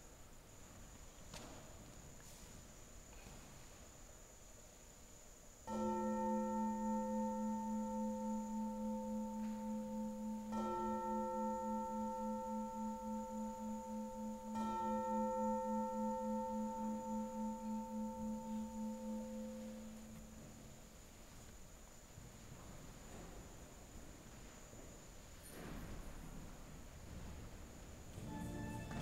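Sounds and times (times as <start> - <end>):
bowl gong ringing: 28.2 - 29.0.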